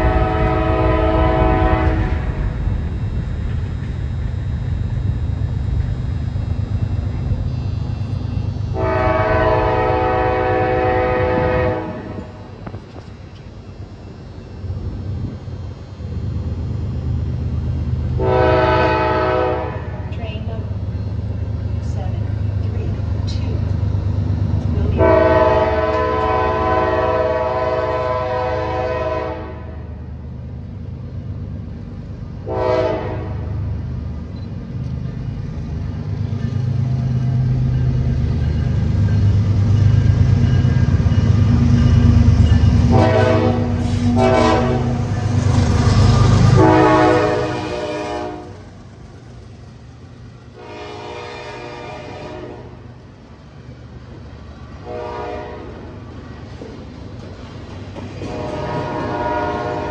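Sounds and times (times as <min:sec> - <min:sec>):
train air horn blasts: 0:00.0 - 0:02.5, 0:08.7 - 0:12.2, 0:18.2 - 0:20.1, 0:25.0 - 0:29.9, 0:32.4 - 0:33.6, 0:42.8 - 0:45.4, 0:46.4 - 0:48.6, 0:50.6 - 0:52.8, 0:54.8 - 0:55.9, 0:58.2 - 0:59.9
locomotive engine and wheel rumble: 0:00.0 - 0:59.9.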